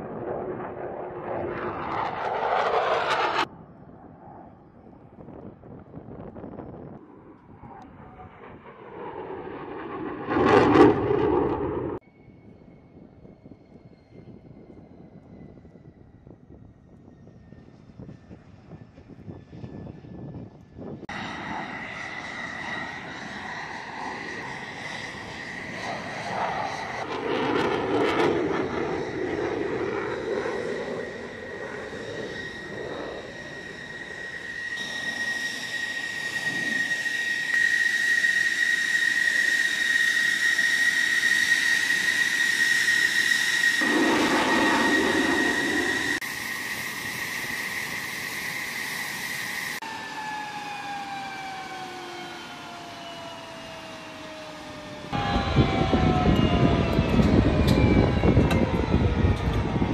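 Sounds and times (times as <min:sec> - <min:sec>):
jet engine whine: 0:00.0 - 0:59.9.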